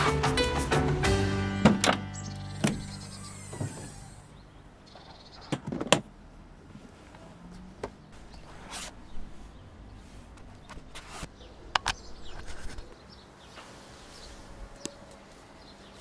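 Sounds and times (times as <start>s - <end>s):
music: 0.0s - 4.2s.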